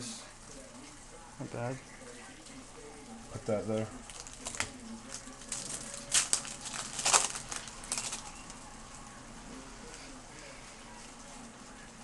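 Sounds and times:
cards flicked rustling: 4.1s - 8.3s.

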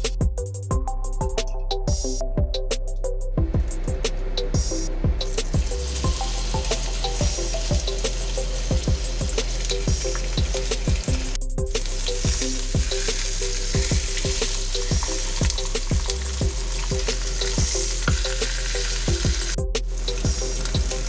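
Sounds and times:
background music with steady beat: 0.0s - 21.0s
ribs sizzling in hot oil: 5.5s - 21.0s.

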